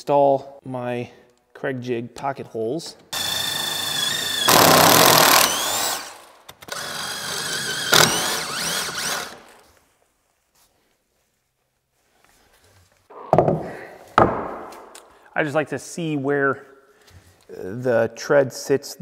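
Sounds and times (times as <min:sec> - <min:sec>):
drill whining into wood: 0:03.1 - 0:09.6.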